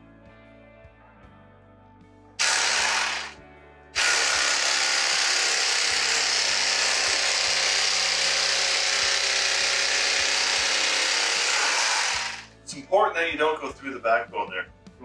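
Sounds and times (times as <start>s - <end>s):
electric knife buzzing: 2.4s - 3.4s, 4.0s - 12.5s.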